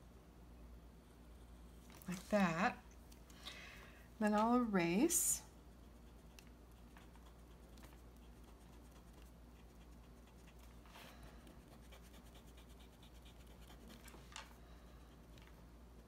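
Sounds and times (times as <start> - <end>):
eraser rubbing on paper: 11.5 - 14.0.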